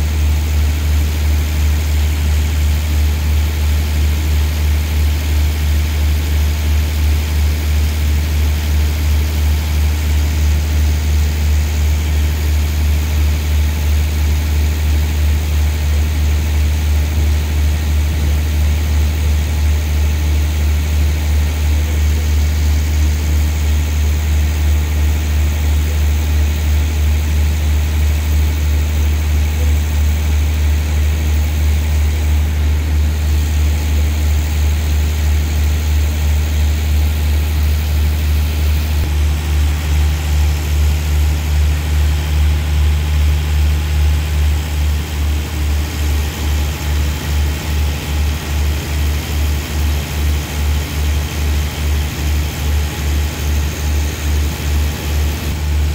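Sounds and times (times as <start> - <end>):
diesel train idling: 0.0 - 55.9.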